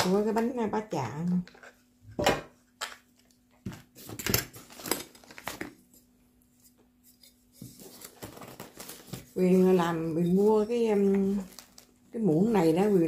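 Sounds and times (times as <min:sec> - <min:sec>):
plastic bags crinkling: 0:04.2 - 0:05.9, 0:07.8 - 0:13.0.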